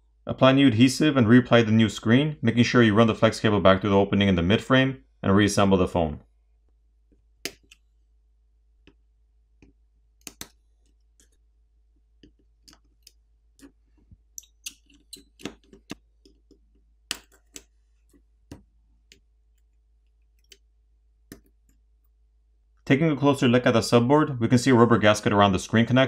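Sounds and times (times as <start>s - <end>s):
small hand tools clicking and tapping: 12.2s - 17.7s.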